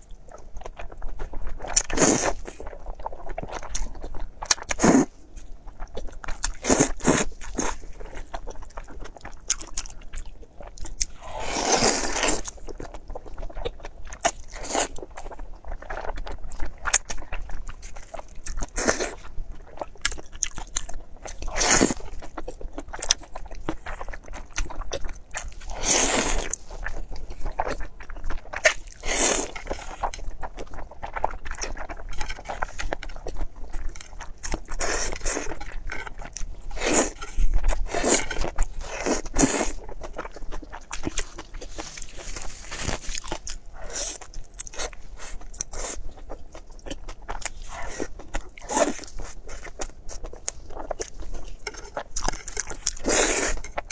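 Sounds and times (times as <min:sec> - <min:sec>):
chewing mouth sounds: 0:00.1 - 0:53.9
person slurping noodles: 0:04.7 - 0:05.1, 0:11.2 - 0:12.5, 0:25.6 - 0:26.5, 0:53.0 - 0:53.6.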